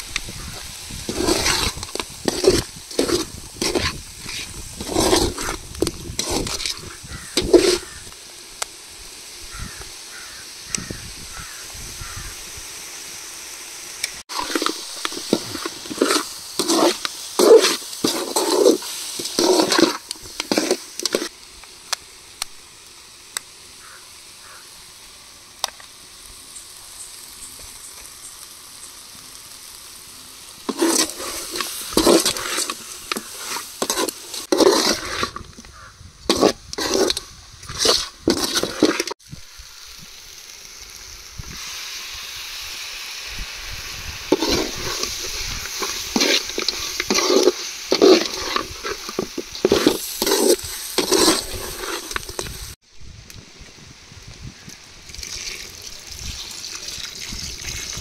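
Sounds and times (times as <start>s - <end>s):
food sizzling in a pan: 0.0s - 58.0s
spoon scraping pan: 0.3s - 8.1s, 14.3s - 21.3s, 30.7s - 39.2s, 44.2s - 52.8s.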